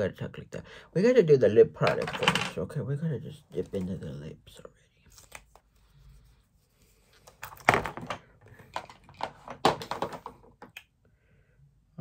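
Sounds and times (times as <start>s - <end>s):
plastic cases clicking: 7.4s - 10.8s.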